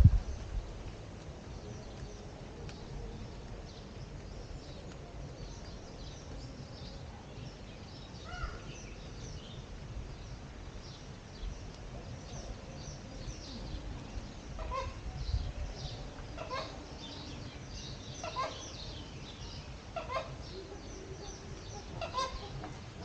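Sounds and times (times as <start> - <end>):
low rumble: 0.0 - 4.1
birds chirping: 0.0 - 23.0.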